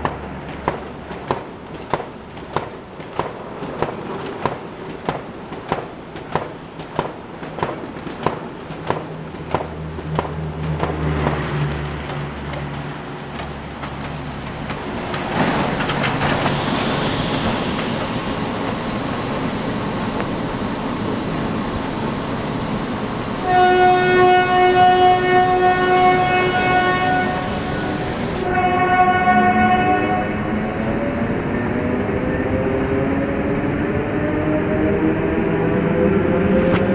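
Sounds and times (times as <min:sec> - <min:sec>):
train wheels clattering over rails: 0:00.0 - 0:20.4
rush of air: 0:14.9 - 0:20.4
train horn blast: 0:23.4 - 0:30.6.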